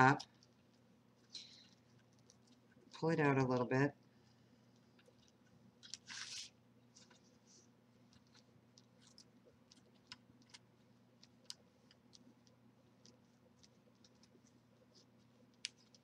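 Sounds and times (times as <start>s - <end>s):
low steady hum: 0.0s - 16.0s
light clicks of handling paper: 4.6s - 16.0s.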